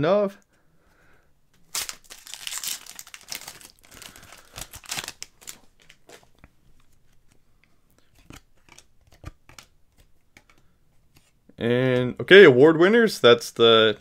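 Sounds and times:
foil wrapper crinkling: 1.6 - 6.3
trading cards sliding and flipping: 3.4 - 11.5.

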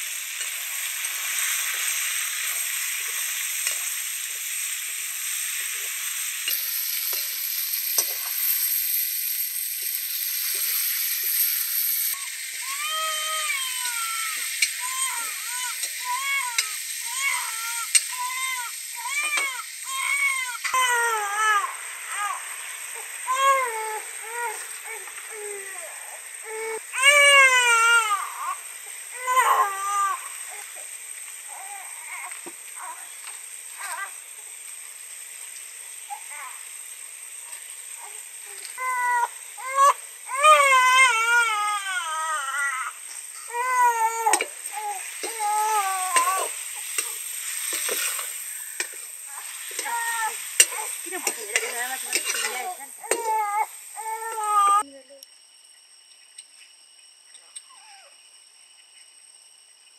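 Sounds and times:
curry sizzling in a pan: 0.0 - 55.0
baby crying: 12.2 - 22.4, 23.3 - 30.7, 31.5 - 33.1, 33.8 - 34.2, 38.0 - 47.2, 49.3 - 54.8
small child whimpering: 41.9 - 47.1, 49.3 - 54.9.

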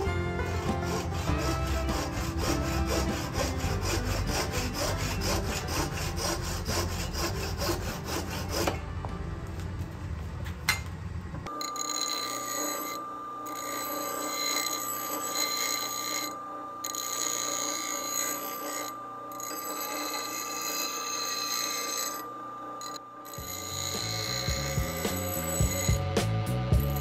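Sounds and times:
bench grinder grinding steel: 0.0 - 9.0, 11.5 - 27.0.

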